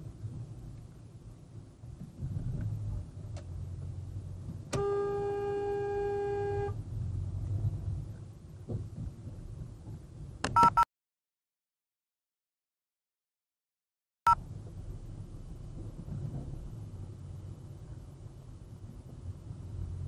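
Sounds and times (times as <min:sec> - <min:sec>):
road noise inside car: 0:00.0 - 0:10.8, 0:14.3 - 0:20.0
car horn honk: 0:04.7 - 0:06.8.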